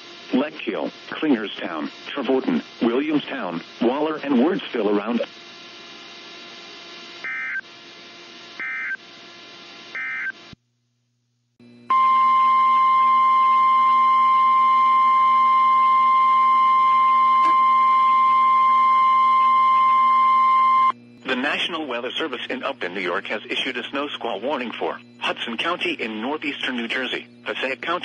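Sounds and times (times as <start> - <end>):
short data bursts: 7.2 - 7.6, 8.5 - 9.0, 9.9 - 10.4, 17.2 - 28.0
steady warning alarm tone: 7.2 - 7.7, 8.4 - 9.0, 9.9 - 10.4, 11.6 - 28.0.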